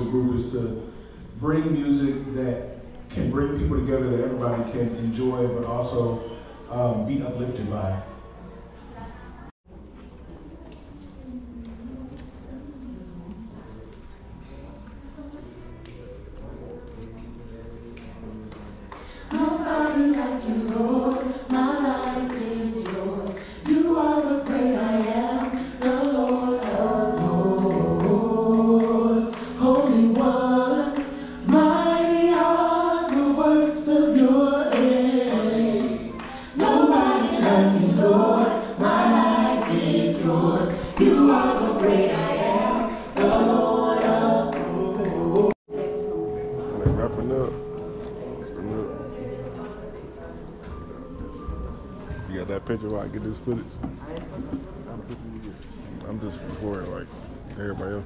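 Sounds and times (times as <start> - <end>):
vocal group singing in harmony: 18.9 - 52.4.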